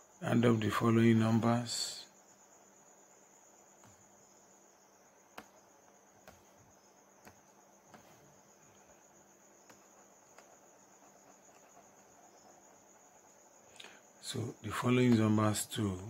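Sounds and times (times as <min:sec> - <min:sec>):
faint high-pitched whine: 0:00.0 - 0:16.0
soft clicks: 0:05.3 - 0:08.2.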